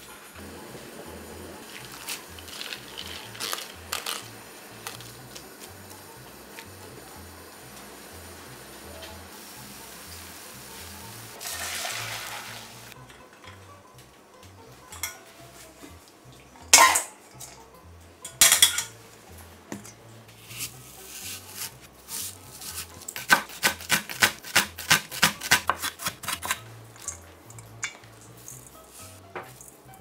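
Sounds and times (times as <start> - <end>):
metal pan and strainer clattering: 16.7 - 17.6, 18.2 - 19.0
knife chopping on wooden board: 22.7 - 26.6.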